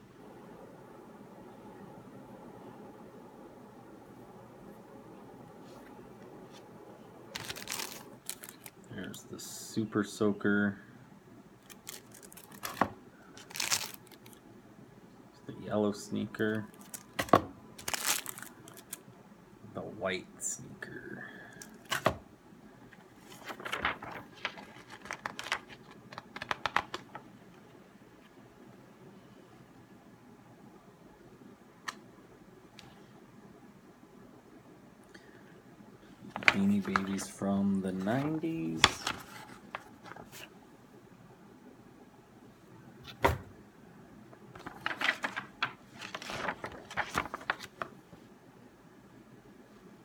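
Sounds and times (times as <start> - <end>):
paper rustling and crinkling: 7.3 - 8.9, 11.6 - 14.4, 16.6 - 19.0, 22.9 - 27.3, 36.2 - 40.6, 44.5 - 48.0.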